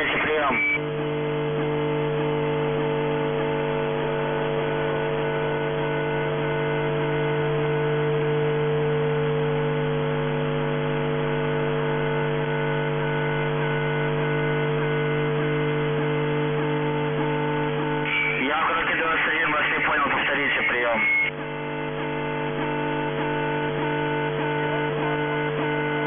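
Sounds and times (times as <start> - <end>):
radio hiss: 0.0 - 0.8, 17.8 - 21.4
radio carrier tones humming: 0.0 - 26.0.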